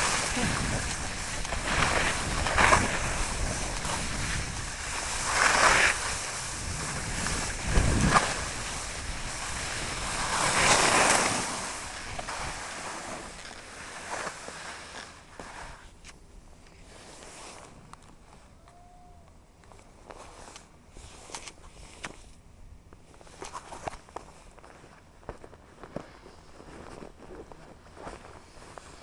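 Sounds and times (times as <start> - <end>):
wind buffeting microphone: 0.0 - 10.7
skis scraping over snow: 0.0 - 15.9, 16.8 - 17.8, 25.6 - 29.0.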